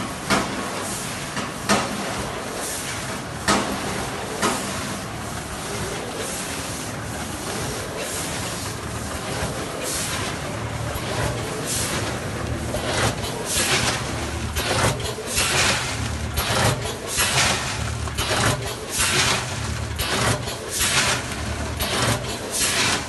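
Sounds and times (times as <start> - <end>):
steady machine noise: 2.0 - 23.0
sharp mechanical clacks: 7.2 - 23.0.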